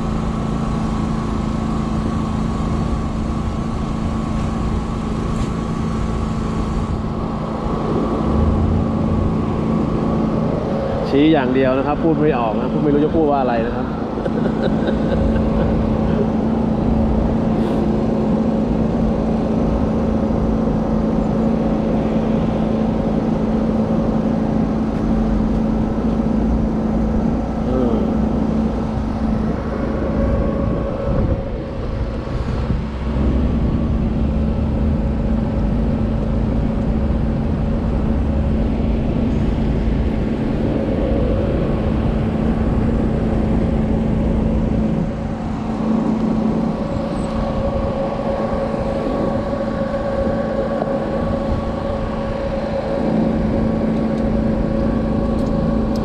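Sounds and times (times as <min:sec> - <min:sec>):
generator engine running: 0:00.0 - 0:56.0.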